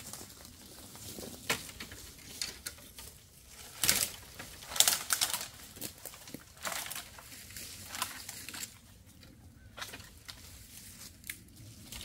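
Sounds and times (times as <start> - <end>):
branches being handled: 0.0 - 12.0
wood cracking and clicking: 1.4 - 7.2.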